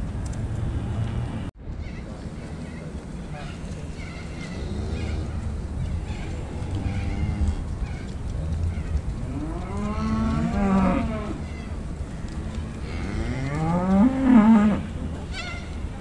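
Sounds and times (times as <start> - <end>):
cattle mooing: 6.3 - 7.6, 9.2 - 11.4, 12.8 - 14.9.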